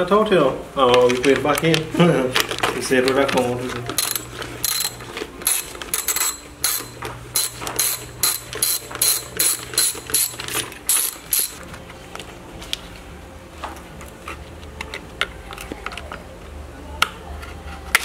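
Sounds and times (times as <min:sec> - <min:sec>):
socket ratchet clicking: 0:04.0 - 0:11.6.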